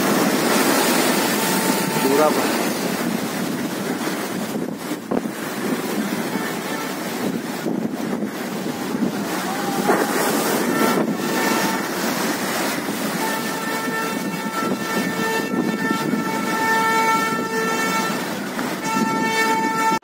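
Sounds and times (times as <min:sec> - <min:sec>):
heavy surf breaking: 0:00.0 - 0:20.0
storm wind: 0:00.0 - 0:20.0
long horn-like tone: 0:00.5 - 0:02.9, 0:06.1 - 0:07.3, 0:08.5 - 0:20.0.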